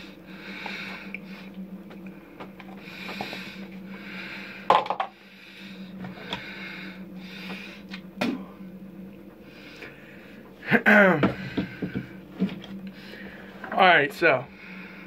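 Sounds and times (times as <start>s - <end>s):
breathing through the nose: 0.0s - 1.6s, 2.8s - 7.9s.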